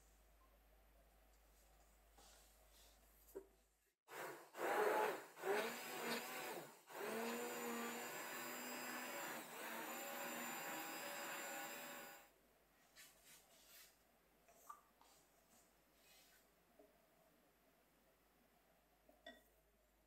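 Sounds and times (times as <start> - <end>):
electric hand blender whisking: 4.1 - 12.3.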